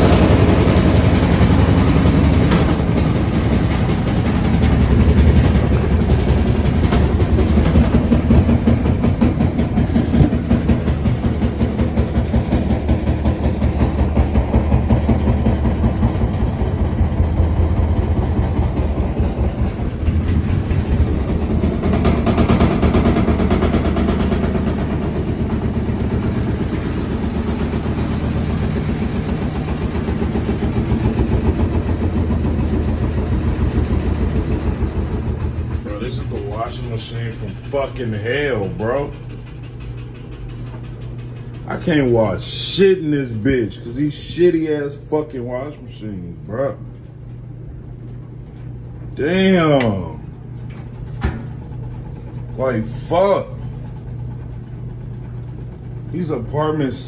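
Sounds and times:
washing machine rumbling and knocking: 0:00.0 - 0:57.0.

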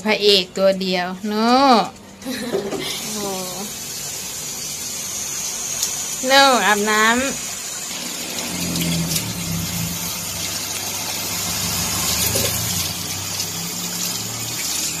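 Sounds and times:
water running from a hose: 0:00.3 - 0:15.0
steady low hum: 0:07.0 - 0:13.1.

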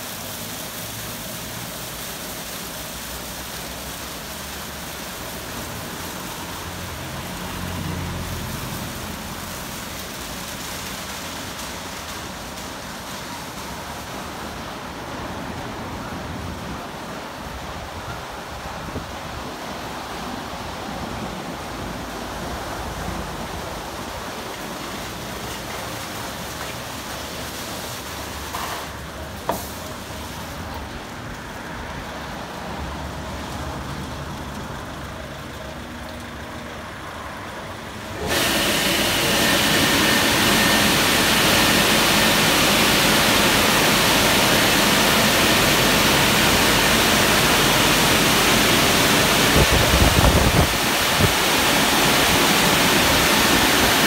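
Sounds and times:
car wash machine humming: 0:00.0 - 0:54.0
loud rushing water spray: 0:00.0 - 0:54.0.

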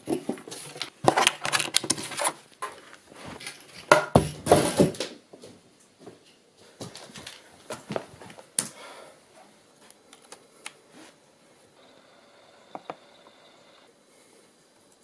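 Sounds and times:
faint high steady tone: 0:11.1 - 0:15.0.

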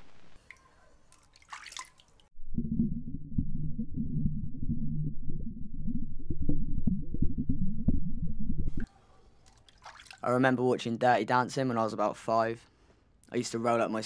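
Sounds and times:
splash: 0:00.5 - 0:02.3, 0:09.5 - 0:10.3
muffled underwater rumble: 0:02.4 - 0:08.9
steady low hum: 0:02.4 - 0:08.9.

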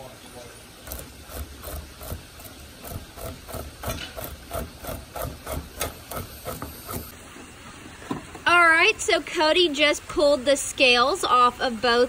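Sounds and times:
fish scaler scraping fish skin: 0:00.9 - 0:07.1.

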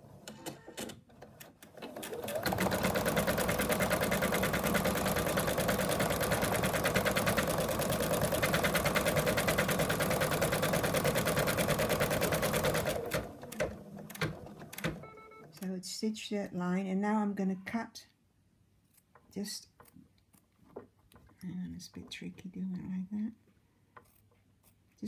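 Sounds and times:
embroidery machine stitching: 0:00.2 - 0:15.2.

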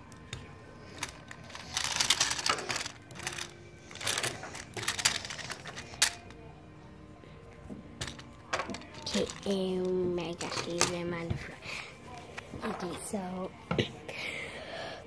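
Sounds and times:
plastic toys clattering on wood: 0:00.3 - 0:06.4, 0:08.0 - 0:11.1.

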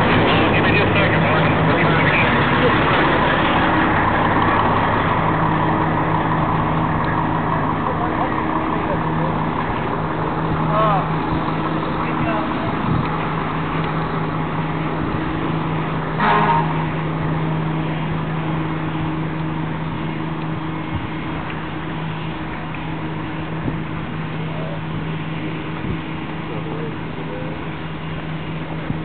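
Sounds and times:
fire truck engines droning: 0:00.0 - 0:29.0.

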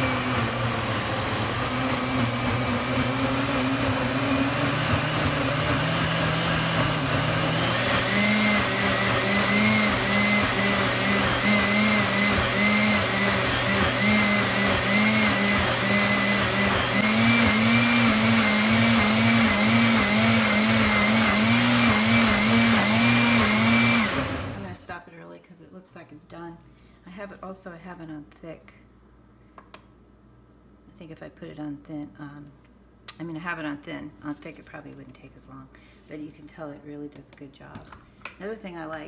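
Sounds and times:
blender motor blending smoothie: 0:00.0 - 0:24.8.

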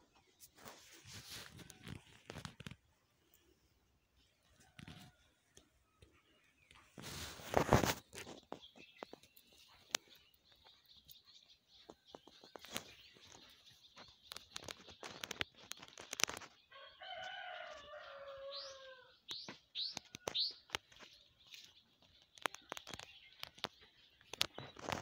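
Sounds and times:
small bird chirping: 0:00.0 - 0:25.0
rooster crowing: 0:16.8 - 0:19.2.

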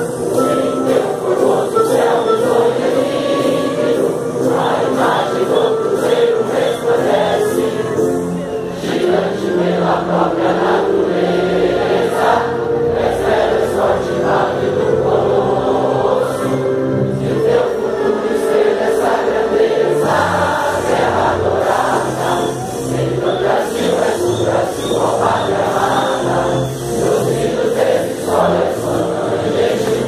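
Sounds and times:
crowd singing in chorus: 0:00.0 - 0:30.0.

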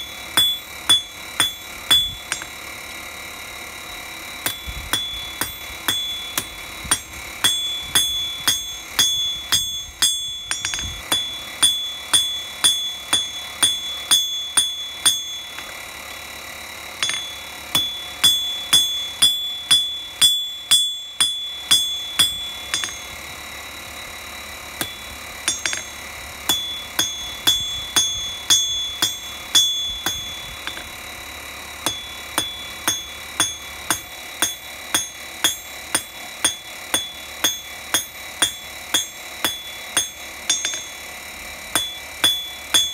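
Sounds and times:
hammer striking steel on anvil: 0:00.0 - 0:02.7, 0:04.4 - 0:15.8, 0:16.8 - 0:23.3, 0:24.8 - 0:31.2, 0:31.8 - 0:42.9.

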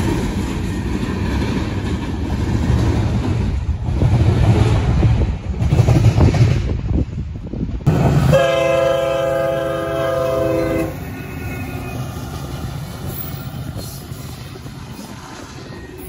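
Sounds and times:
train rumbling past: 0:00.0 - 0:16.0
locomotive horn: 0:08.2 - 0:12.1.

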